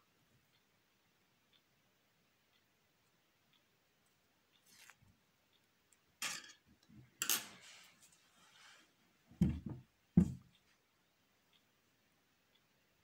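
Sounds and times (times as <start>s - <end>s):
dull knocks on wooden table: 9.4s - 10.4s.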